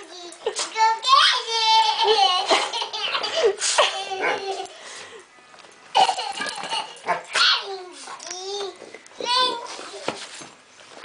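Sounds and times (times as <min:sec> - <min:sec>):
little girl giggling: 0:01.9 - 0:04.7.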